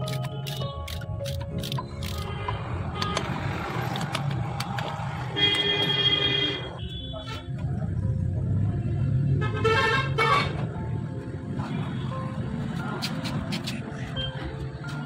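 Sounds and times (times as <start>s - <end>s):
vehicle horn honking: 5.4s - 7.5s.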